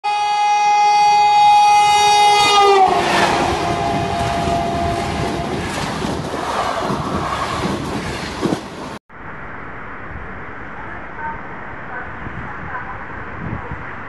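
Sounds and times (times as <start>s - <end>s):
train horn: 0.0s - 5.9s
train rushing past: 1.8s - 9.0s.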